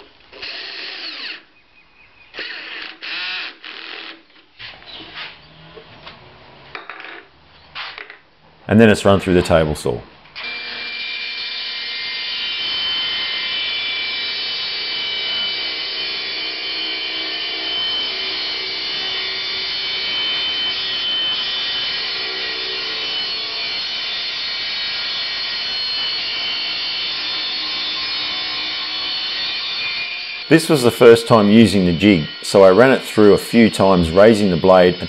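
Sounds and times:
table saw cutting wood: 10.4 - 35.0.

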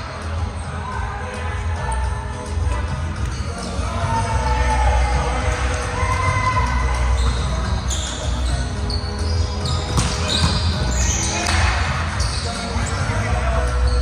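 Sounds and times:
sneaker squeaks on floor: 3.2 - 3.9, 7.1 - 13.2, 13.8 - 14.0
volleyball hit and bouncing: 9.8 - 10.8, 11.4 - 11.9.

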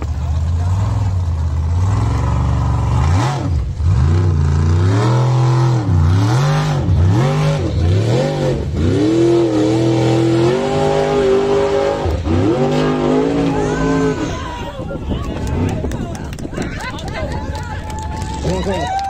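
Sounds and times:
buggy engine revving hard: 0.0 - 14.6.

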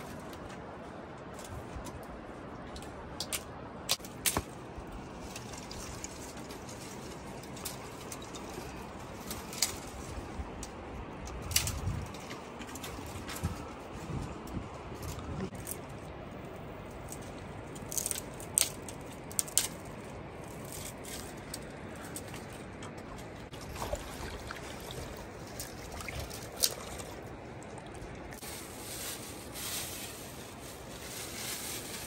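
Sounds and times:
water trickling in a channel: 22.4 - 28.4.

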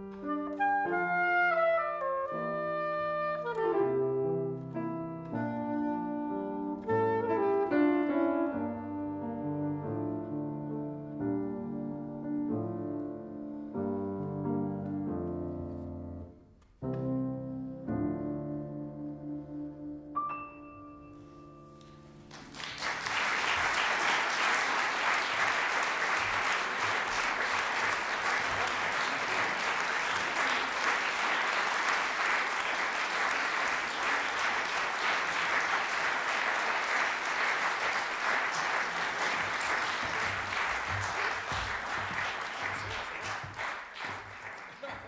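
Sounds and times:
soprano saxophone and piano chord: 0.2 - 12.3, 16.9 - 22.2
audience applause: 22.3 - 45.0.

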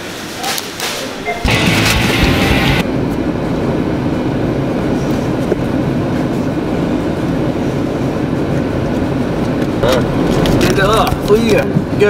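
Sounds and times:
car engine and tyre rumble: 4.5 - 12.0.

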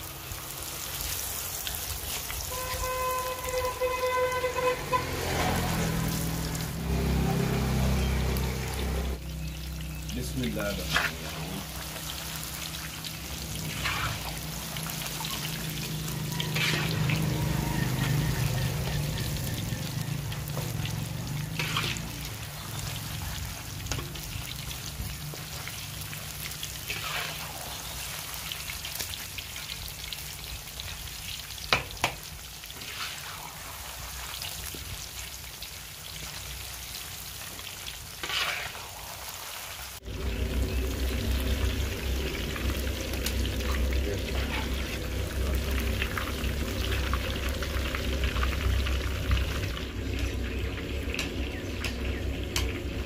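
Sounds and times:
deep-frying sizzle in oil: 0.0 - 53.0
metal skimmer scraping: 13.6 - 14.4, 21.6 - 22.1, 40.2 - 45.6.

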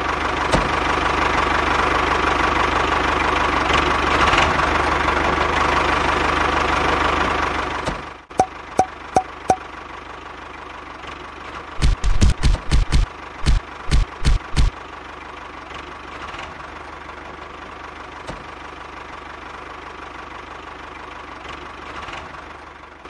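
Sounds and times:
tractor engine running: 0.0 - 15.6
sharp clicks: 11.8 - 14.7.

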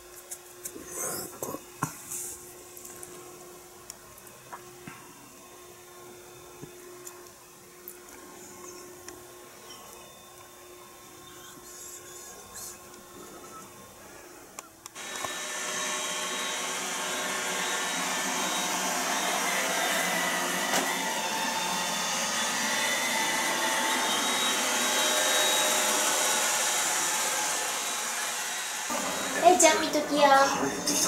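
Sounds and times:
robot vacuum cleaner whirring: 14.7 - 31.0.

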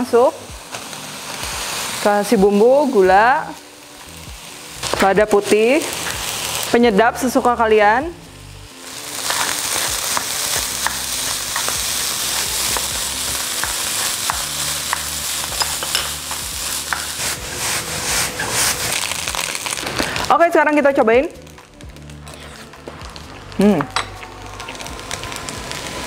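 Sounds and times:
rice sizzling in a wok: 0.0 - 26.0
spatula scraping a pan: 16.9 - 19.2, 22.2 - 22.9.

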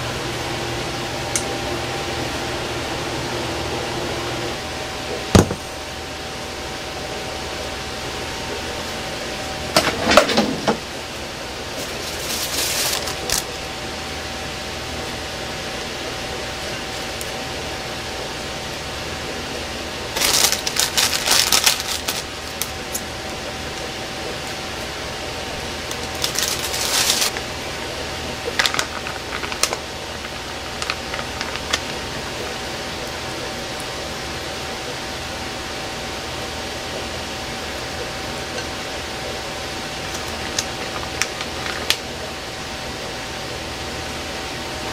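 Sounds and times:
faint high hum: 0.0 - 44.9
fan whirring: 0.0 - 44.9
crinkly rustling: 11.7 - 13.6, 20.1 - 23.0, 25.9 - 27.5, 28.4 - 32.6.

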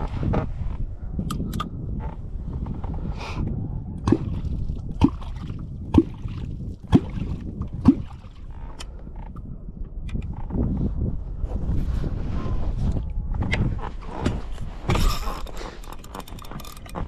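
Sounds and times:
wooden clonk striking water: 4.0 - 4.4, 5.0 - 8.4.

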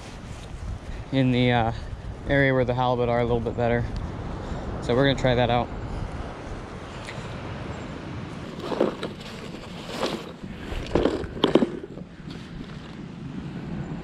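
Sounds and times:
wind noise on microphone: 0.0 - 14.0
plastic tackle box clacking: 8.5 - 12.1.

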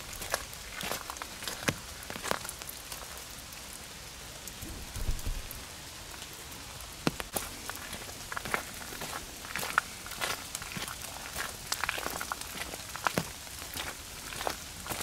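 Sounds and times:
footsteps on wet gravel: 0.0 - 3.3, 7.0 - 15.0
rain hissing in forest: 0.0 - 15.0
short low bump: 4.7 - 5.6.

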